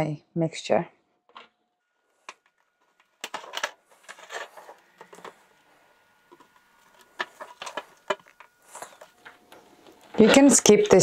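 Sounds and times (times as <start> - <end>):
metal spoon scraping a tray: 10.2 - 11.0.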